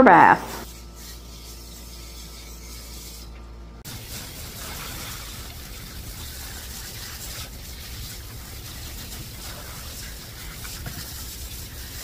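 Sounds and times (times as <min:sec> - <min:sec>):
steady low hum: 0:00.0 - 0:12.0
hose spray hissing: 0:03.9 - 0:12.0.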